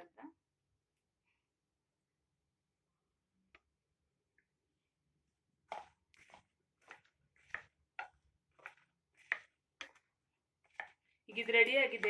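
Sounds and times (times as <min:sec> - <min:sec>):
spoon squelching in wet mixture: 0:05.6 - 0:12.0.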